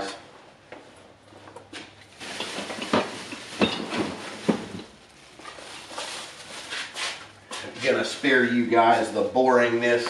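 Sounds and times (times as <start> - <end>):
objects rustling and clattering: 0.8 - 8.4.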